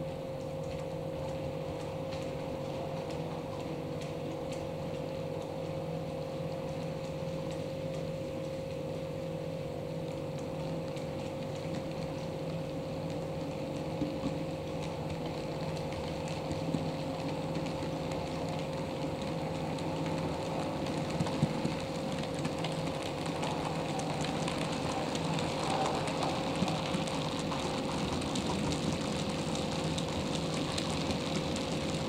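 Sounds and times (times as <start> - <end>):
steady hum: 0.0 - 32.0
wheels clicking on track: 10.4 - 32.0.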